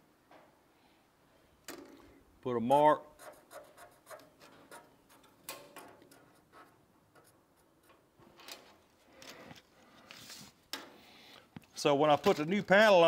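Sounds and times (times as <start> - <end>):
small clicks and rubs on sheet metal: 3.1 - 11.7.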